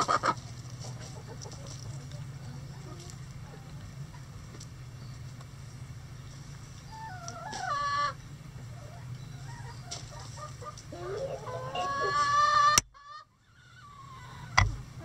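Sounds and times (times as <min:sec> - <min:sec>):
steady low hum: 0:00.0 - 0:15.0
rooster crowing: 0:10.9 - 0:12.8.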